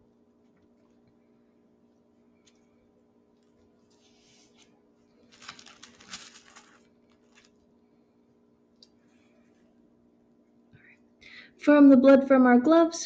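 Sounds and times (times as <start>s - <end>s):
low steady hum: 0.0s - 13.0s
brief rustling: 3.4s - 7.7s.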